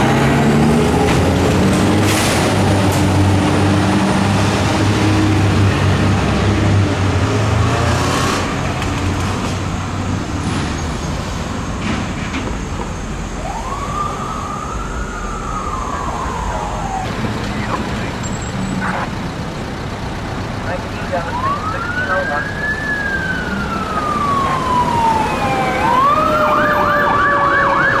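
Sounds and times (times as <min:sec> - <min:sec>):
fire truck diesel engine: 0:00.0 - 0:28.0
siren wail: 0:13.4 - 0:17.9, 0:21.2 - 0:28.0.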